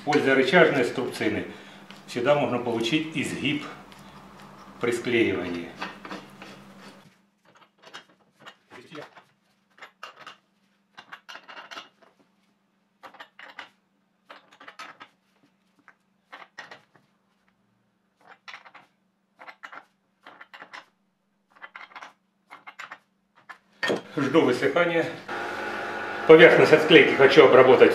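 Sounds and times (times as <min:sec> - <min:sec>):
faint steady hum: 0:00.0 - 0:07.1.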